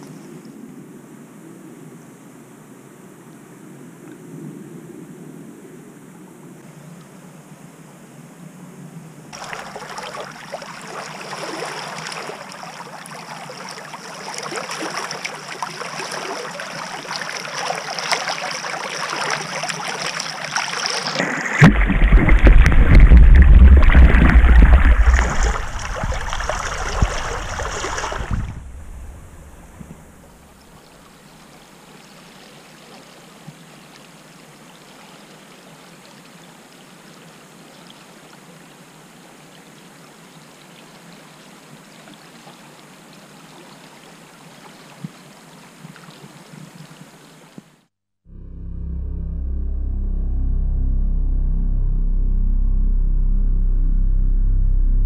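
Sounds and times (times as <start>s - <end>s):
flood water splashing and churning: 9.3s - 47.8s
shallow water flowing: 9.3s - 47.9s.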